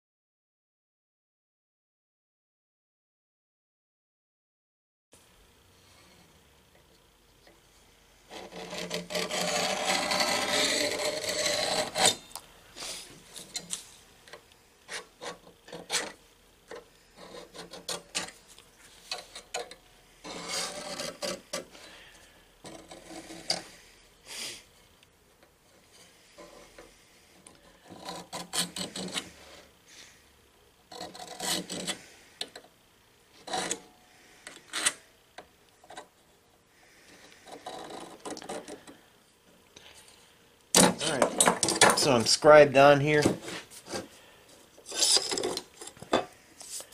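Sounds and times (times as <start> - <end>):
scribe scratching on steel: 8.3 - 13.8, 14.9 - 21.9, 22.6 - 23.8, 27.5 - 29.7, 30.9 - 32.1, 33.4 - 33.9.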